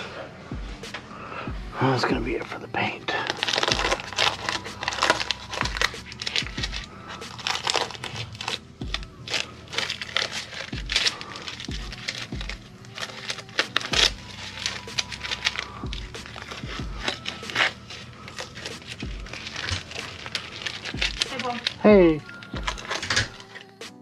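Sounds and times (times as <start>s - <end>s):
dull low thumps: 1.5s - 2.4s, 15.8s - 17.0s, 19.0s - 19.4s
plastic sheeting and tape crinkling: 2.8s - 24.0s.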